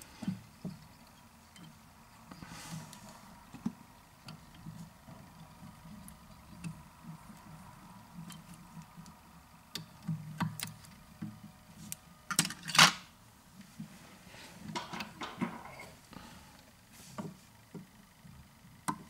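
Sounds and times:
small clicks taps and rustles: 0:00.2 - 0:12.6.

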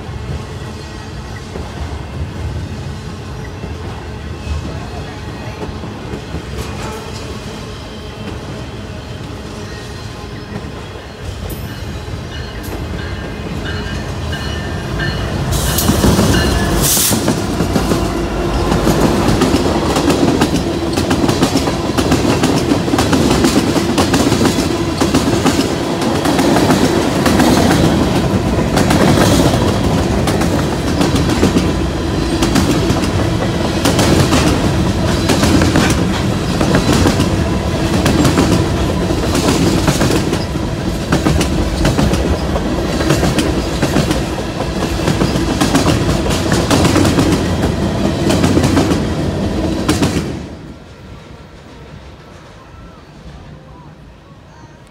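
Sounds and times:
diesel locomotive passing: 0:00.0 - 0:54.9.

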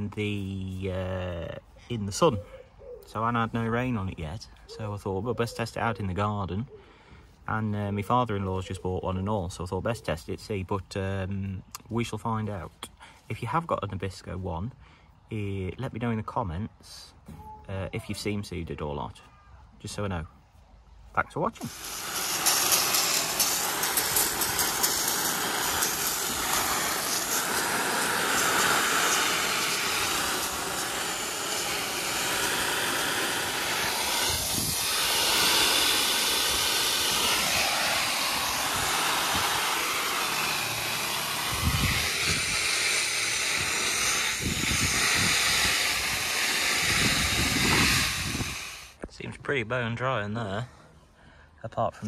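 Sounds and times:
hose spray hissing on tent fabric: 0:21.6 - 0:49.0.

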